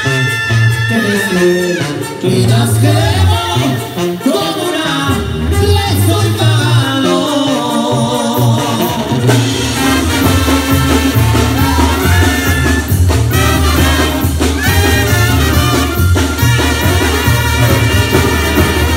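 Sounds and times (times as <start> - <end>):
brass band music: 0.0 - 18.9
trumpets and trombones: 0.0 - 18.9
sousaphone bass line: 5.1 - 18.9
drums keeping beat: 8.2 - 18.9.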